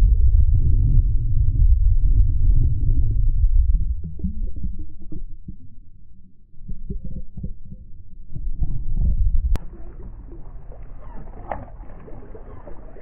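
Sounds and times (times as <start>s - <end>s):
choppy water: 0.0s - 13.0s
muffled underwater rumbling: 0.0s - 13.0s
wind: 9.6s - 13.0s.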